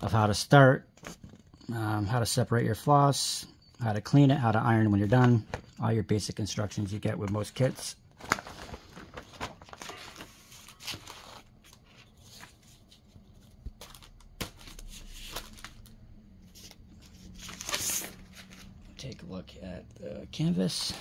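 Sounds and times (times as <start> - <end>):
paper rustling and crinkling: 6.9 - 19.0.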